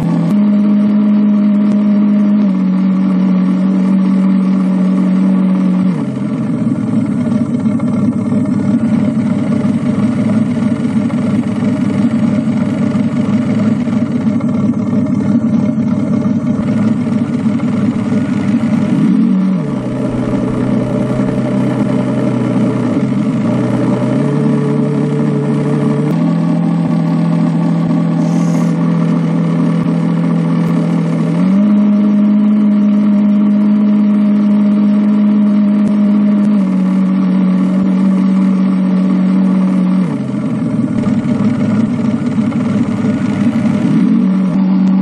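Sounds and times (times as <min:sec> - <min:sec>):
model boat motor humming: 0:00.0 - 0:45.0.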